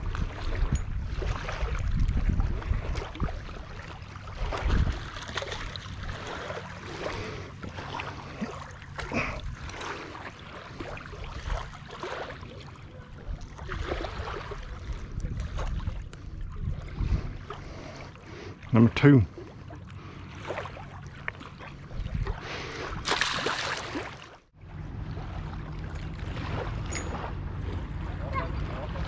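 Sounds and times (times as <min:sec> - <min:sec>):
wind rumbling on microphone: 0:00.0 - 0:07.3, 0:13.0 - 0:18.0, 0:21.7 - 0:23.1
scuffs and splashes: 0:00.0 - 0:18.5, 0:20.1 - 0:24.4
water lapping and trickling: 0:00.0 - 0:29.0.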